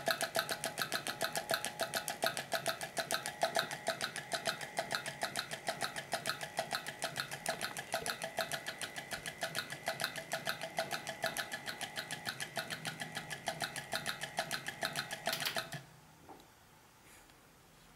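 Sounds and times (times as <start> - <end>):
fast regular clicking: 0.0 - 15.8
steady high hum: 0.0 - 17.9.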